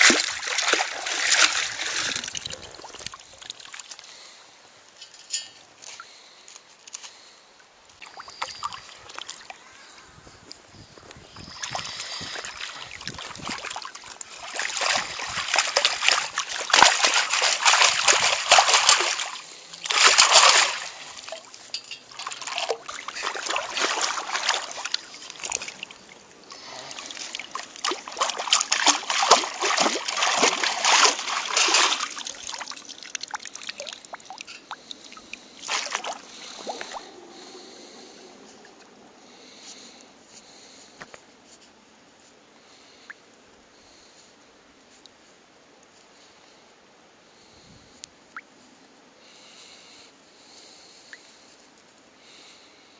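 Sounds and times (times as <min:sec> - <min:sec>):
water splashing and sloshing: 0:00.0 - 0:04.4, 0:08.0 - 0:09.7, 0:10.5 - 0:39.0.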